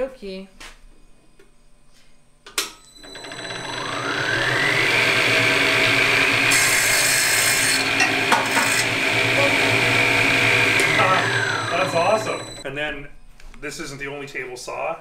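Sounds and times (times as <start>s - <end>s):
saw motor whining: 3.0s - 12.7s
saw blade cutting wood: 6.3s - 12.6s.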